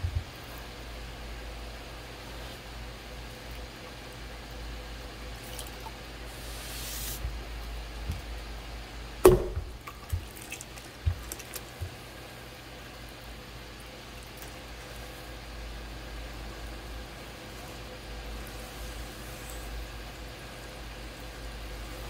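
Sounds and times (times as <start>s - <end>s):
loud knock: 9.2s - 9.7s
soft thumps: 9.2s - 10.3s
wet clay worked by hand: 9.3s - 12.4s.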